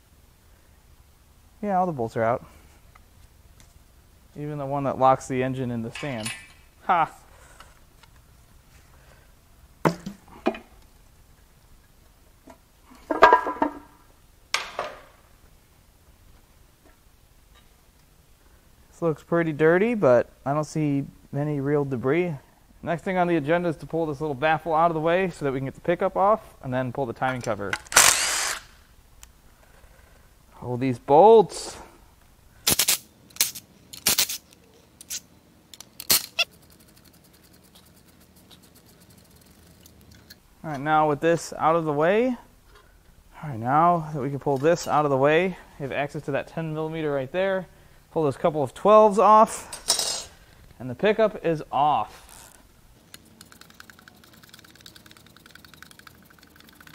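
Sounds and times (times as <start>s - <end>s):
bolts squeaking and scraping: 5.8s - 6.7s, 33.8s - 40.9s, 52.1s - 56.8s.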